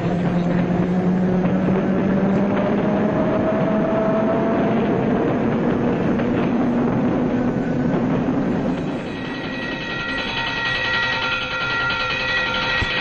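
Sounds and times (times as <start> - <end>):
city traffic din: 0.0 - 13.0
long held tones: 7.0 - 13.0.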